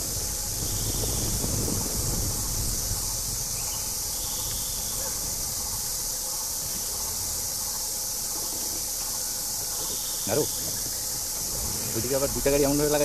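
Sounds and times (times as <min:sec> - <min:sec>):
faint low rumble: 0:00.0 - 0:09.8
high-pitched insect chorus: 0:00.0 - 0:13.0.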